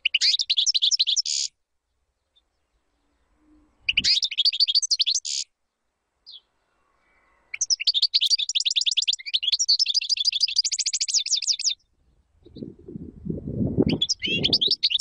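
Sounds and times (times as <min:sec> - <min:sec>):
goldfinch singing: 0:00.0 - 0:01.5, 0:03.9 - 0:05.5, 0:07.5 - 0:11.8, 0:13.8 - 0:15.0.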